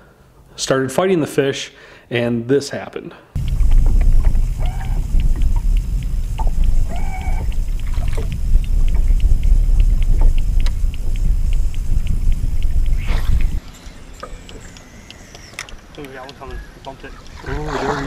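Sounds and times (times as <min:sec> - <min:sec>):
low rumble of wind and water: 0:03.4 - 0:13.7
fishing reel ticking: 0:03.4 - 0:18.0.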